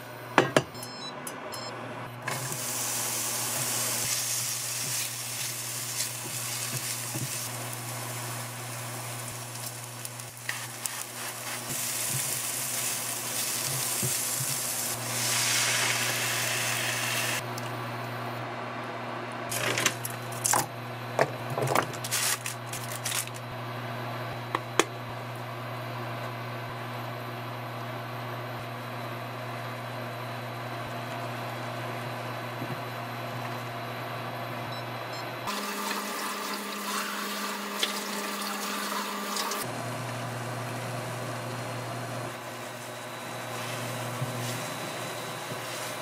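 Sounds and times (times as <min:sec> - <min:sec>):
vegetables sizzling in hot oil: 0:02.5 - 0:17.4.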